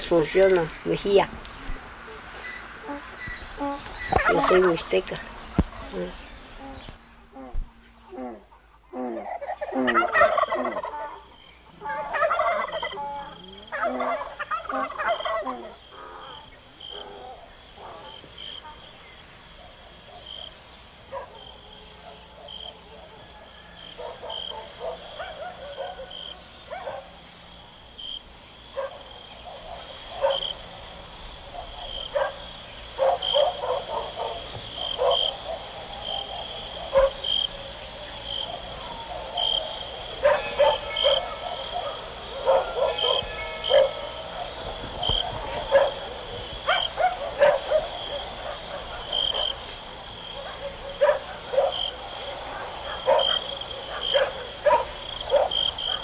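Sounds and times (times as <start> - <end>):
short animal calls: 2.0 - 4.6.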